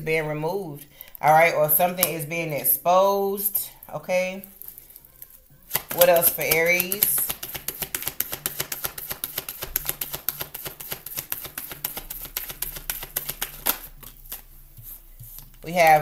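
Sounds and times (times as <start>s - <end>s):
cards shuffled by hand: 4.4s - 16.0s.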